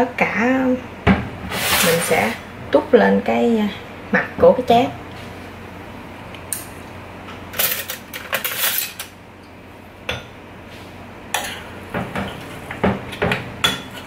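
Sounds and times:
metal spoon scraping a frying pan: 0:07.6 - 0:09.1, 0:11.4 - 0:11.8.

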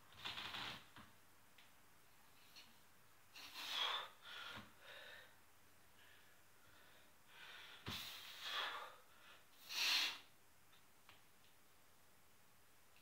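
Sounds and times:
man breathing hard: 0:03.4 - 0:05.4, 0:06.0 - 0:10.3.

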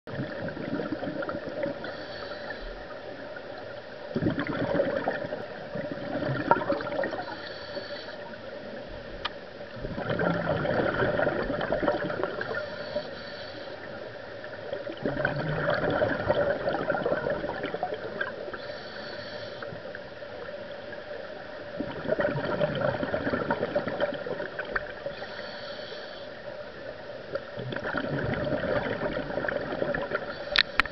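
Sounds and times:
diver exhaling bubbles: 0:00.1 - 0:01.9, 0:04.1 - 0:07.4, 0:09.8 - 0:12.8, 0:14.8 - 0:18.4, 0:21.8 - 0:25.2, 0:27.6 - 0:30.6
regulator hiss: 0:01.8 - 0:03.1, 0:07.1 - 0:08.6, 0:12.5 - 0:14.1, 0:18.5 - 0:19.9, 0:25.1 - 0:26.5, 0:30.3 - 0:30.9.

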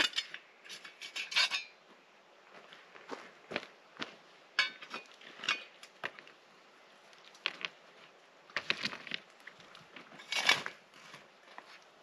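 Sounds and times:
metal shovel scraping ash and gravel: 0:00.0 - 0:01.8, 0:10.1 - 0:11.2.

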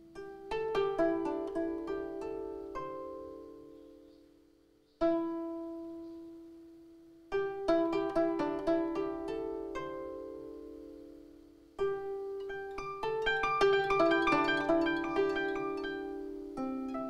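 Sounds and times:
koto plucked: 0:00.0 - 0:04.2, 0:05.0 - 0:06.6, 0:07.3 - 0:17.0.

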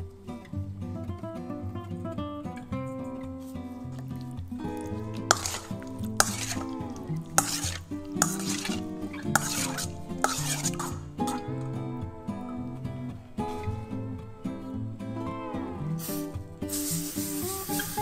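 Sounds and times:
acoustic guitar music: 0:00.0 - 0:18.0
metal spoon scraping a metal bowl: 0:04.0 - 0:11.6.

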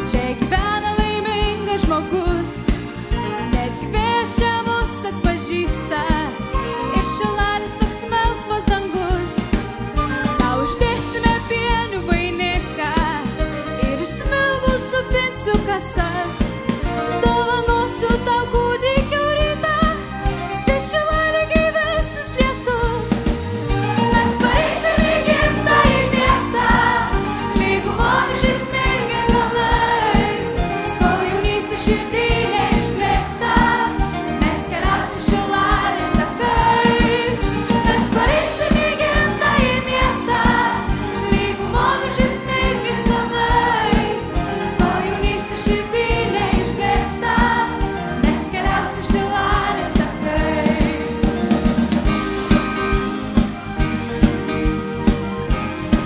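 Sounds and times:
woman singing with choir and band: 0:03.3 - 0:51.6
drums beat: 0:23.1 - 0:56.0.

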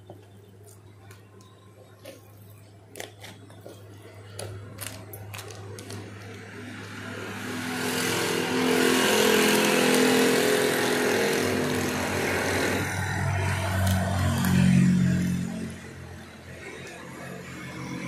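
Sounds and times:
seasoning packet rustling: 0:03.0 - 0:06.4
vehicle passing: 0:05.9 - 0:18.0.

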